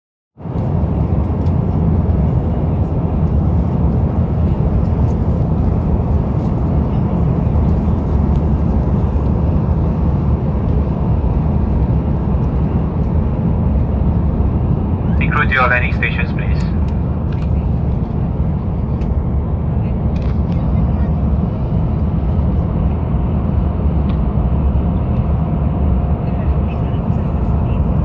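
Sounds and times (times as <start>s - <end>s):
airplane cabin roar: 0.4s - 28.0s.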